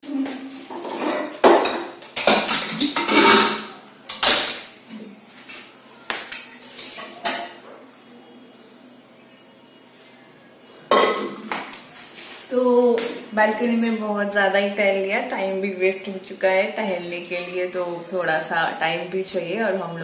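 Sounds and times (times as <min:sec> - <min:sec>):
pots and utensils clanking: 0:00.6 - 0:07.6, 0:10.9 - 0:11.8.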